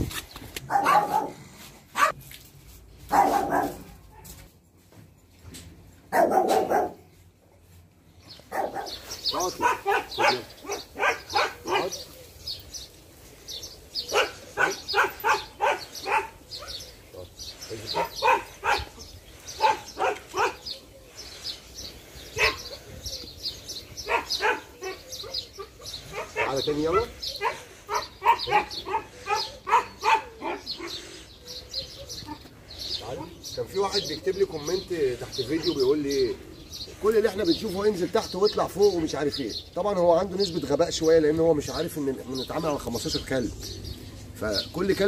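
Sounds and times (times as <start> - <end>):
dog barking: 0.7 - 1.4, 2.0 - 2.2, 3.1 - 4.5, 6.1 - 7.1, 8.5 - 12.0, 14.1 - 16.9, 17.9 - 19.0, 19.6 - 20.6, 22.4 - 22.8, 24.0 - 26.7, 27.4 - 31.0.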